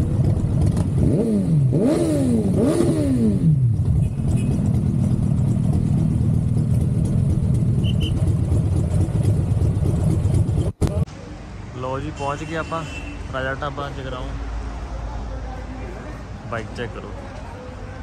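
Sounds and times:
motorcycle engine revs falling: 0.0 - 11.0.

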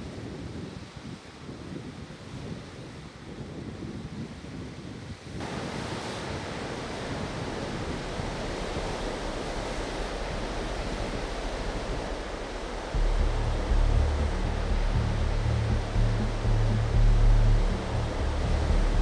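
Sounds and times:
low wind rumble: 0.0 - 19.0
ocean surf breaking: 5.4 - 19.0
deep bass music tone: 10.3 - 19.0.

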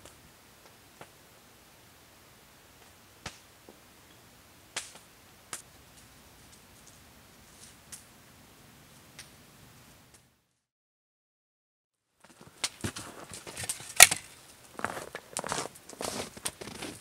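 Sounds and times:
wood fire crackling: 0.0 - 10.3, 12.2 - 17.0
faint steady hiss: 0.0 - 10.6.

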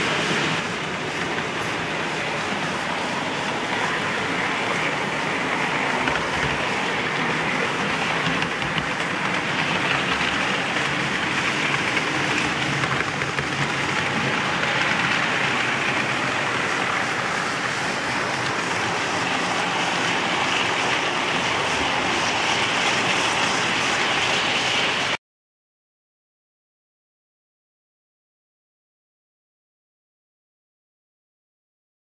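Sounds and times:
model trains rolling on rails: 0.0 - 25.2.

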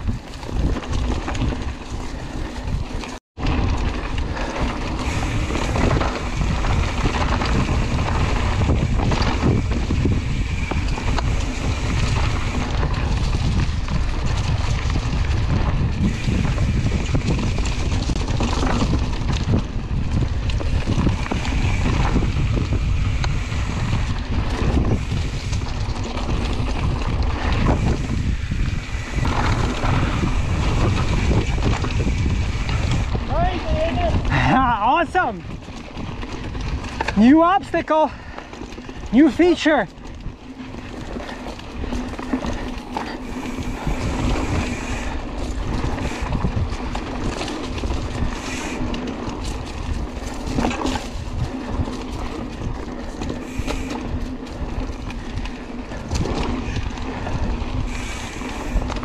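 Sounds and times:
bike knocks and rattles: 0.0 - 34.6
wind rushing over microphone: 0.0 - 59.0.

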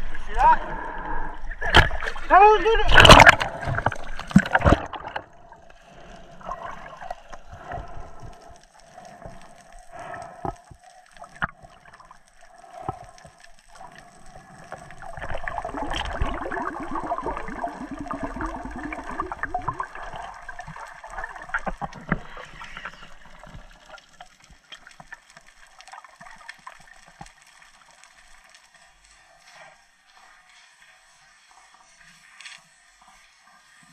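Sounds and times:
water gurgling and bubbling: 0.0 - 24.3
underwater water noise: 0.0 - 33.9.

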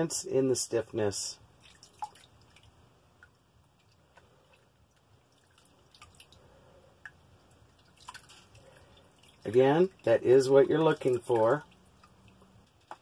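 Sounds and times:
soft water drips: 1.4 - 13.0
water trickling into tub: 1.4 - 13.0.

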